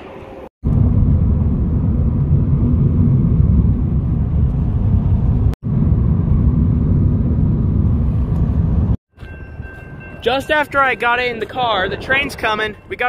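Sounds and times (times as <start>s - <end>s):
car driving low rumble: 0.6s - 9.0s.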